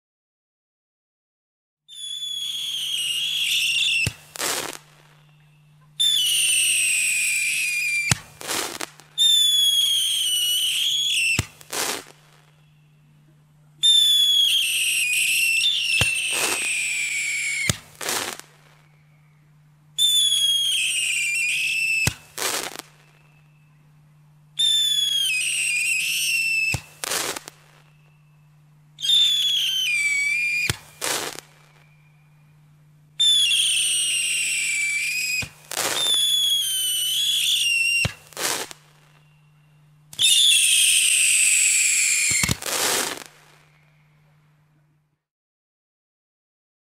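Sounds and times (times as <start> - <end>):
firework whistles: 1.9 - 13.0, 13.8 - 23.7, 24.5 - 32.6, 33.2 - 44.2
firework bangs: 2.4 - 5.3, 6.0 - 12.6, 13.9 - 18.8, 20.0 - 23.2, 24.7 - 27.9, 29.0 - 31.8, 33.2 - 39.3, 40.1 - 43.8
low hum: 3.8 - 6.2, 7.7 - 13.9, 15.6 - 24.9, 26.8 - 29.8, 30.7 - 33.4, 38.1 - 40.2.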